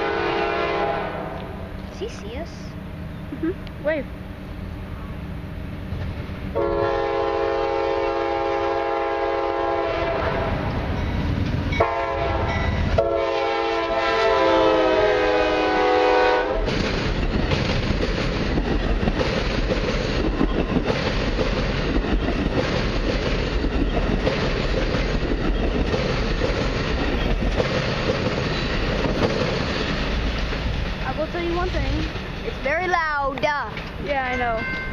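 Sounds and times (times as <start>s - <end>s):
locomotive air horn blasts: 0.0s - 1.6s, 6.5s - 10.6s, 11.8s - 16.7s
train rumble and wheel clatter: 0.0s - 34.9s.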